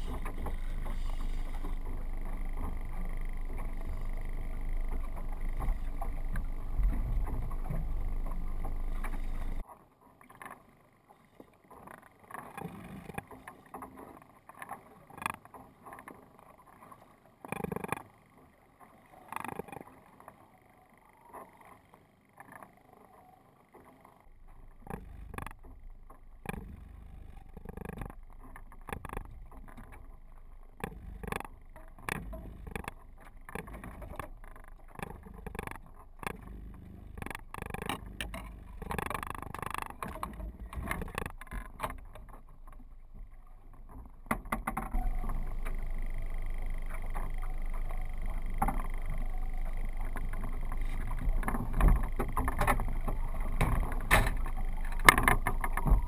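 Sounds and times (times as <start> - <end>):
gear knocking against hull: 0.0 - 9.6, 24.4 - 56.0
boat engine rumble: 0.0 - 9.7, 10.6 - 56.0
water and wind rumble: 0.0 - 56.0.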